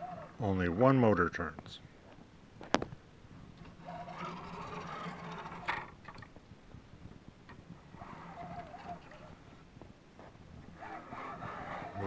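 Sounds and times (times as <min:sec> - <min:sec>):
printer carriage sliding on rods: 0:03.6 - 0:06.2, 0:07.8 - 0:09.4, 0:10.7 - 0:12.0.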